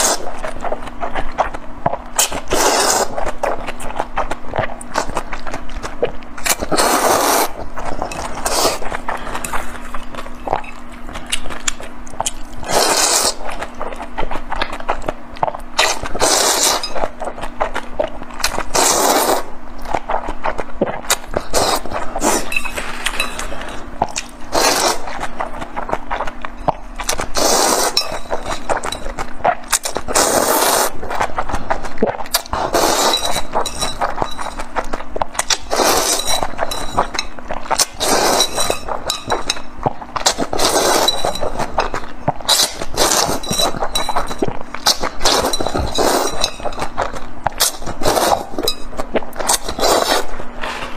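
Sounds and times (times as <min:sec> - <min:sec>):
wet noodle slurping: 0:00.0 - 0:00.3, 0:01.3 - 0:03.8, 0:06.4 - 0:14.0, 0:15.4 - 0:17.0, 0:17.6 - 0:26.4, 0:27.0 - 0:50.9
chewing clicks and smacks: 0:07.9 - 0:12.7.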